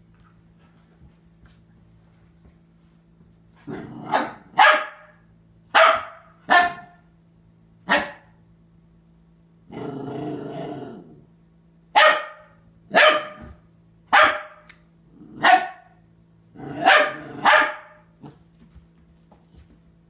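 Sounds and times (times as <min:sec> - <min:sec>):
puppy growling low: 0:03.6 - 0:04.5, 0:09.6 - 0:11.4, 0:15.0 - 0:15.5, 0:16.5 - 0:17.5
puppy barking sharply: 0:04.5 - 0:07.0, 0:07.9 - 0:08.3, 0:12.0 - 0:13.5, 0:14.1 - 0:14.7, 0:15.4 - 0:16.0, 0:16.8 - 0:18.0.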